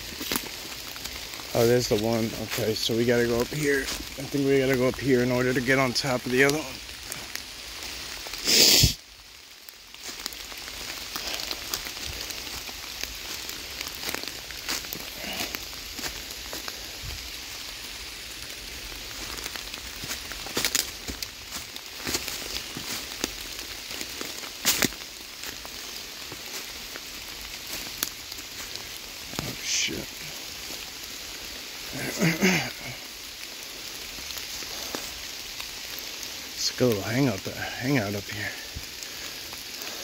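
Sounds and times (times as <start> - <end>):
heavy rain pattering: 0.0 - 40.0
loud burst of noise: 8.4 - 9.0.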